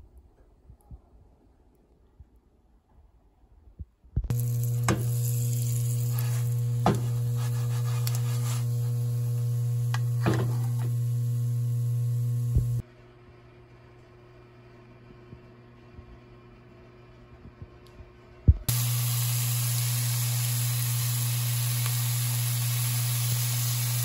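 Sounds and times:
low electrical hum: 0:04.2 - 0:24.0
pastries sizzling in a frying pan: 0:04.3 - 0:12.8, 0:18.7 - 0:24.0.

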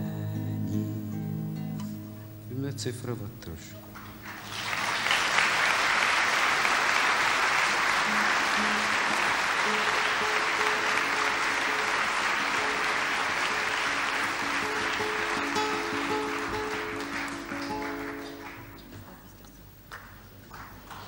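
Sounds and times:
picked acoustic guitar notes: 0:00.0 - 0:02.9, 0:08.1 - 0:18.8
audience applauding: 0:03.9 - 0:21.0.

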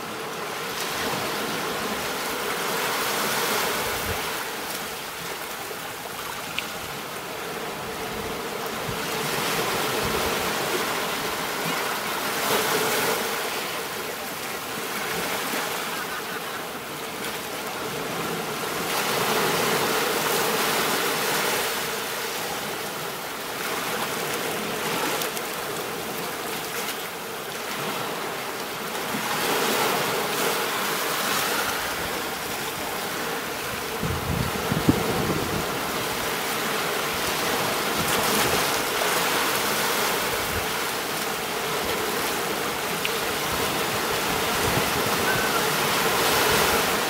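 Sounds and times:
ocean waves breaking on a beach: 0:00.0 - 0:47.0.

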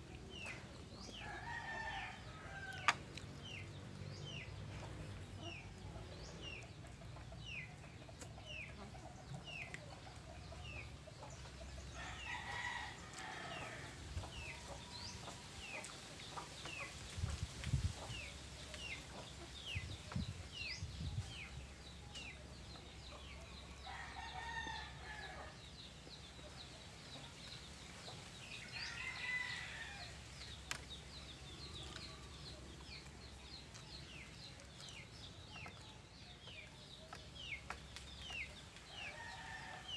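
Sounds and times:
roosters crowing: 0:01.1 - 0:03.1, 0:11.9 - 0:14.7, 0:23.8 - 0:25.6, 0:28.6 - 0:30.6, 0:38.8 - 0:39.9.

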